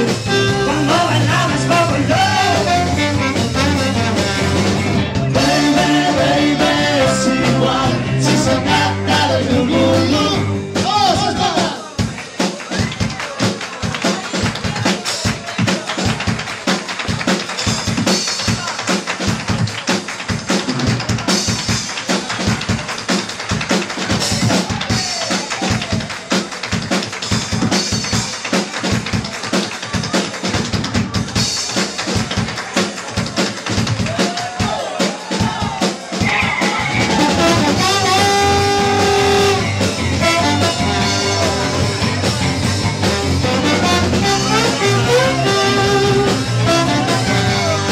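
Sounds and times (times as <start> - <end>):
band music: 0.0 - 47.9
drum kit snare rolls: 0.0 - 47.9
trombone held notes: 36.6 - 42.0, 43.1 - 47.9.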